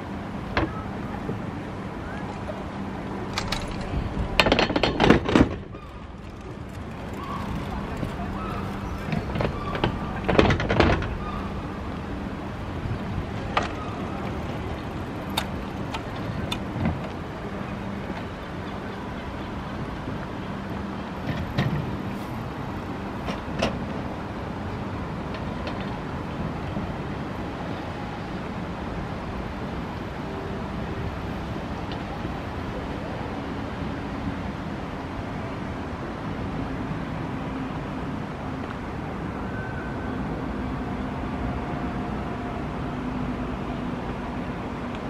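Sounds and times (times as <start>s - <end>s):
city background hum: 0.0s - 45.0s
sharp clicks and knocks: 3.3s - 8.2s.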